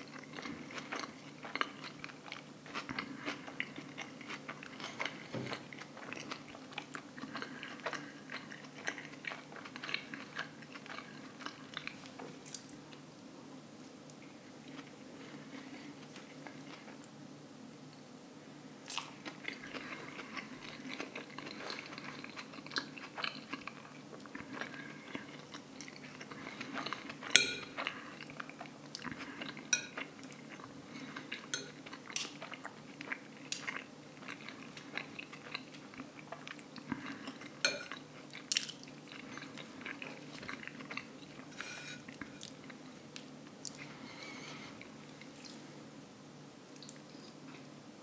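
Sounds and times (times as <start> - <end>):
chewing and crunching: 0.0 - 13.0, 18.9 - 45.6
fork and knife scraping a plate: 41.5 - 42.2.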